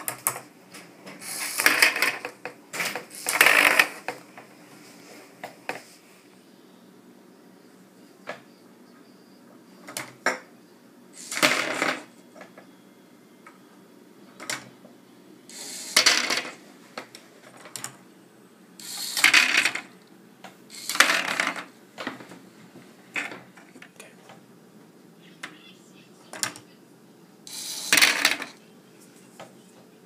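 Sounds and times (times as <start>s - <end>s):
plastic balls clattering down ramp: 1.5s - 4.2s, 19.1s - 19.9s, 20.8s - 21.7s, 27.9s - 28.6s.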